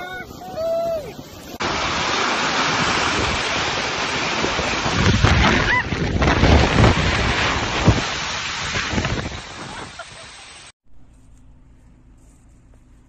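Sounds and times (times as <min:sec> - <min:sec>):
hail pelting ground: 0:01.2 - 0:10.7
wind buffeting microphone: 0:02.7 - 0:10.0.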